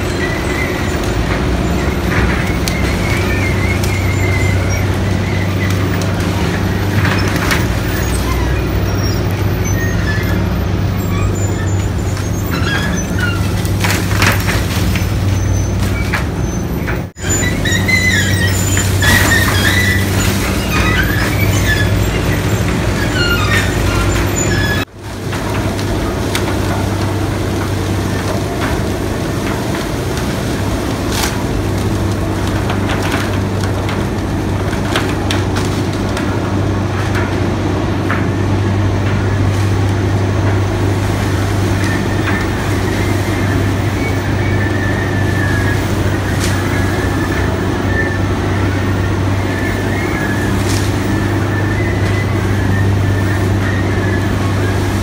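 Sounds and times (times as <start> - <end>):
high squeaks: 0.0 - 24.9, 40.1 - 55.0
conveyor drives humming: 0.0 - 55.0.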